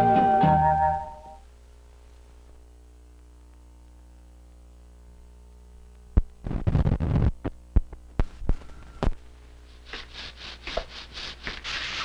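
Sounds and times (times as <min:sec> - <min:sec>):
mains hum: 0:00.0 - 0:12.0
scrub brush swishing on floor: 0:09.7 - 0:12.0.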